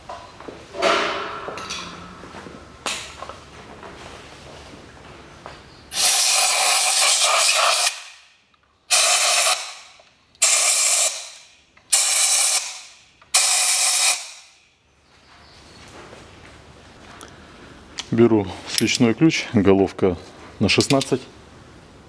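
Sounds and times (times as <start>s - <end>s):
compressed air hissing blasts: 5.9s - 8.2s, 8.9s - 14.5s.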